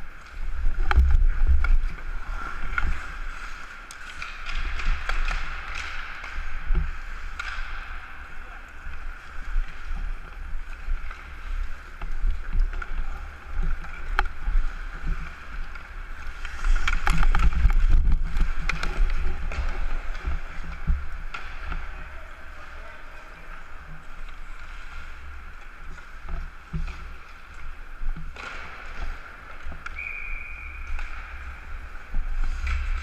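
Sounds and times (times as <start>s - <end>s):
hockey sticks and puck clacking: 0.1s - 33.0s
skate blades scraping ice: 9.0s - 21.2s.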